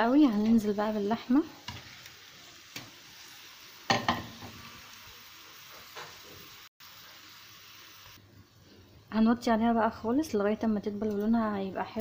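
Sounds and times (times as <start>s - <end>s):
onion sizzling in a pan: 0.0s - 12.0s
knocks against a pan: 3.9s - 4.5s.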